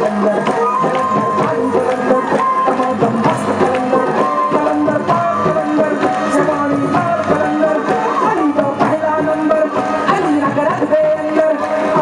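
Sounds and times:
hand drum beats: 0.0s - 12.0s
woman singing: 0.0s - 12.0s
sustained melodic accompaniment: 0.6s - 8.2s.

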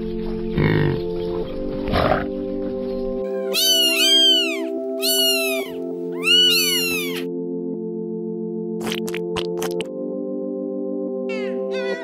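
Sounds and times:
background music with held notes: 0.0s - 12.0s
high arching animal calls: 3.5s - 7.3s.

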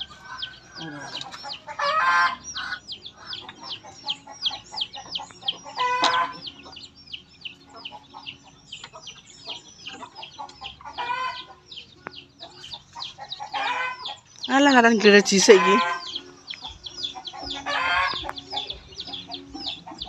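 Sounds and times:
chickens peeping: 0.0s - 20.0s
chicken squawk: 0.1s - 4.8s, 5.6s - 6.5s, 10.0s - 11.6s, 13.2s - 14.2s, 15.4s - 16.2s, 17.2s - 19.8s.

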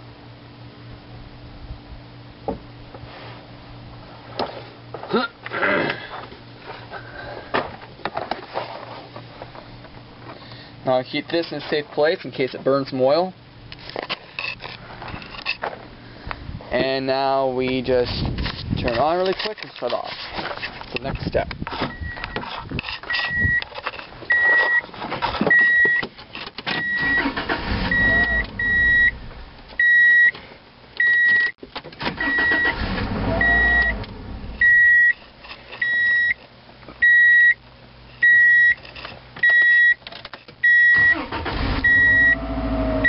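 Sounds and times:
rustling and handling noises: 6.0s - 10.5s, 17.7s - 26.6s
dashboard warning chime beeping: 21.9s - 22.4s, 25.5s - 26.0s, 26.8s - 29.2s, 29.8s - 30.3s, 31.0s - 31.5s, 32.2s - 32.8s, 33.4s - 34.0s, 34.6s - 35.1s, 35.8s - 36.4s, 37.0s - 37.6s, 38.2s - 38.8s, 39.4s - 40.0s, 40.6s - 42.5s.

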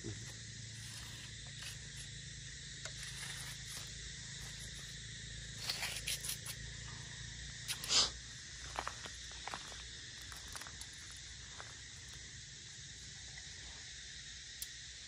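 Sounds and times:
steady outdoor hiss: 0.0s - 15.0s
rustles and scrapes: 0.2s - 2.2s, 2.8s - 6.6s.

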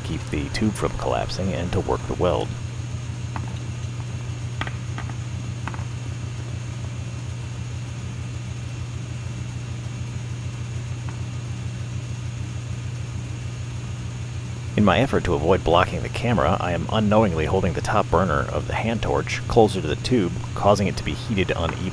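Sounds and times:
even hiss: 14.8s - 21.9s.

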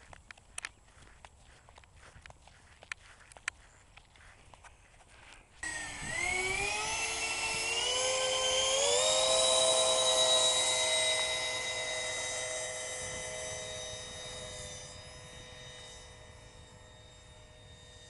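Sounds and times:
electric fans whining: 5.6s - 18.0s.

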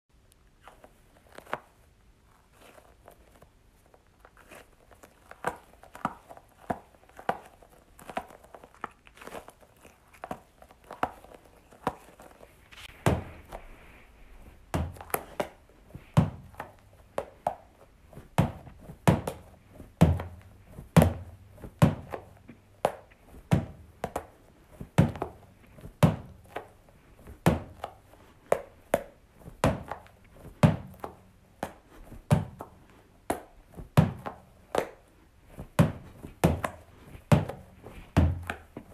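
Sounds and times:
gel clump thudding on wall: 14.7s - 17.6s, 18.2s - 26.6s, 35.6s - 38.9s.

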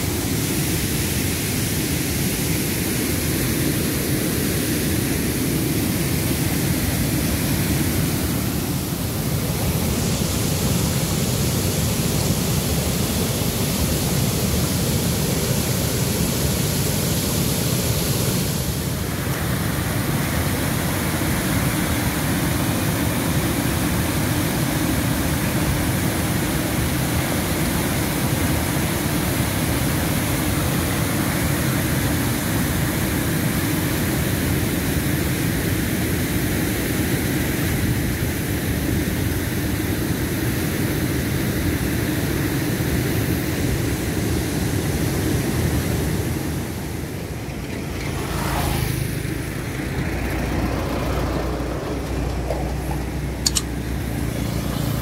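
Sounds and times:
water rushing over a weir: 0.0s - 55.0s
truck passing: 47.0s - 55.0s.

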